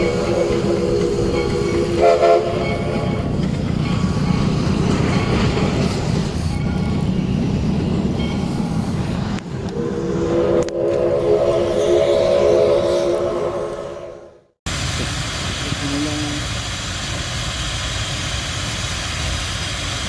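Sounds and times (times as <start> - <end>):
steam locomotive whistle: 0.0 - 3.1, 9.7 - 14.4
train rumble and clatter: 0.0 - 14.0, 14.6 - 20.0.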